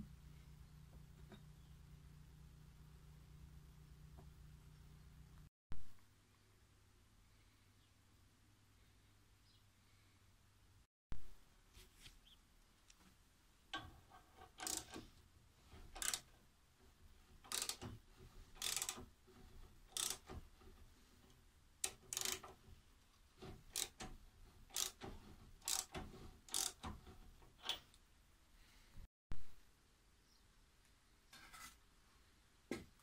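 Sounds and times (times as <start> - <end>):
lathe metallic scrapes and clicks: 13.8 - 15.1, 15.7 - 16.3, 17.4 - 20.9, 21.8 - 22.6, 23.4 - 27.9.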